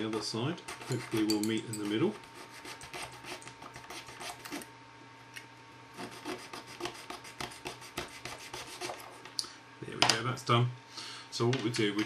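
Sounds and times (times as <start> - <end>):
saw rasping through resin: 0.0 - 4.6, 6.0 - 9.2.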